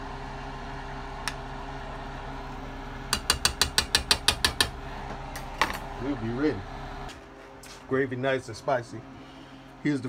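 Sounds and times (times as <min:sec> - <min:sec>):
gas stove igniter clicking: 0:01.2 - 0:01.4, 0:03.1 - 0:04.8.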